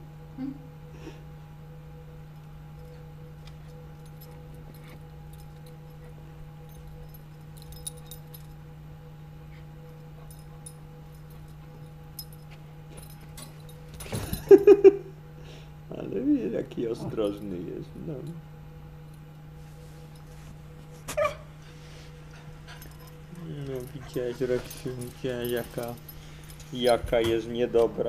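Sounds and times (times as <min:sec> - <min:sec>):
steady low hum: 0:00.0 - 0:28.0
faint clinks: 0:02.2 - 0:15.0, 0:17.0 - 0:28.0
dog whimpering: 0:21.1 - 0:21.6, 0:22.4 - 0:25.2.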